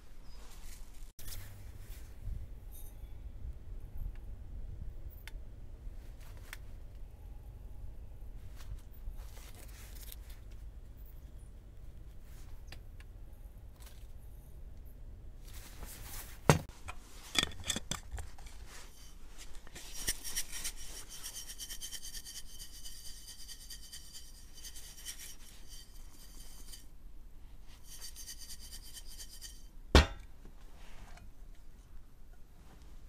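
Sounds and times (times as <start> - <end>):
powder rattling in shaken jar: 19.6 - 26.8.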